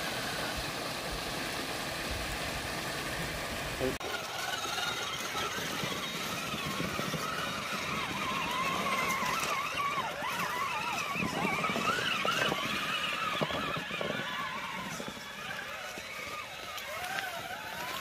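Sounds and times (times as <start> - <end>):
electric motors whining: 2.7 - 18.0
tyres crunching over stones: 4.1 - 18.0.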